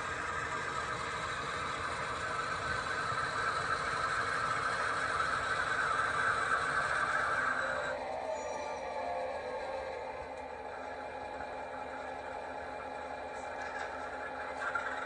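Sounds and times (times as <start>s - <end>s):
model train wheels rolling on rails: 0.0s - 15.0s
wheel squeal: 3.6s - 11.0s.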